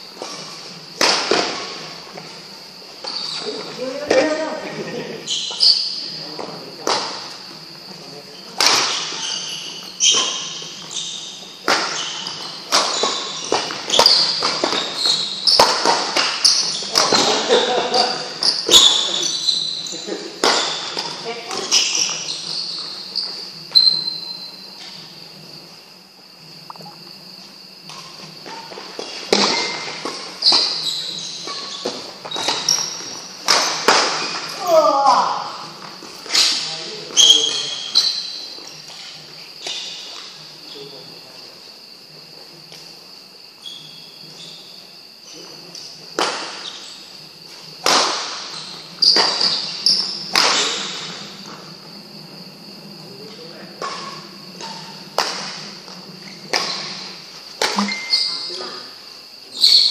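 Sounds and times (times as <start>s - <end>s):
shoes squeaking on court floor: 0.0s - 59.9s
rackets hitting shuttlecock: 1.0s - 1.9s, 8.6s - 19.2s, 20.4s - 23.0s, 29.0s - 34.6s, 47.7s - 51.7s, 53.8s - 55.6s, 56.4s - 58.1s
rackets striking shuttlecock: 8.6s - 9.2s, 11.6s - 17.3s.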